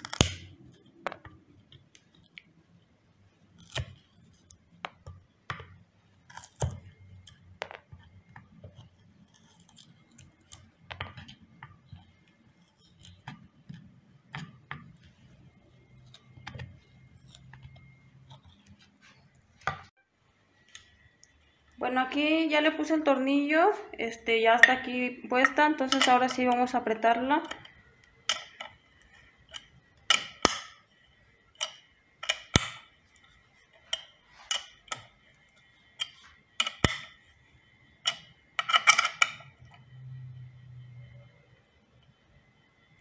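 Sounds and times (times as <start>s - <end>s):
wood chisel scraping: 16.0s - 19.8s.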